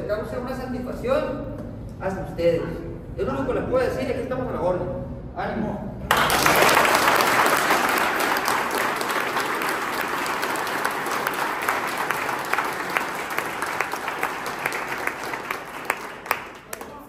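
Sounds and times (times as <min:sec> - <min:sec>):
people applauding: 0:06.1 - 0:17.0.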